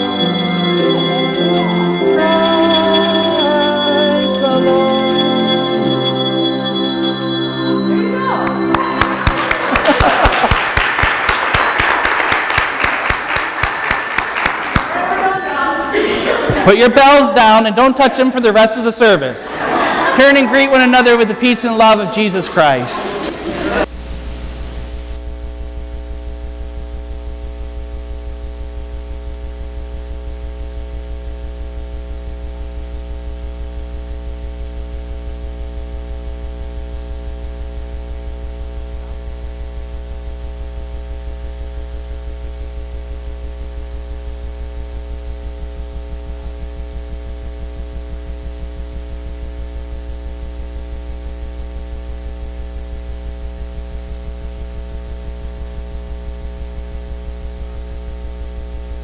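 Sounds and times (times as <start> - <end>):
electrical mains hum: 14.5 - 59.0.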